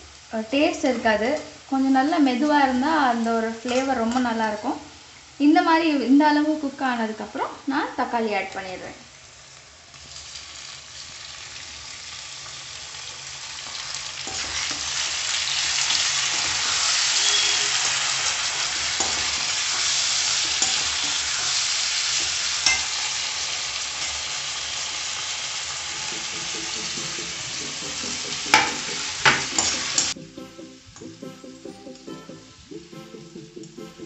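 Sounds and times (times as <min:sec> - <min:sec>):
tomatoes sizzling in a pan: 0:00.0 - 0:34.0
spoon clacking against pan: 0:14.2 - 0:23.0, 0:27.8 - 0:30.2.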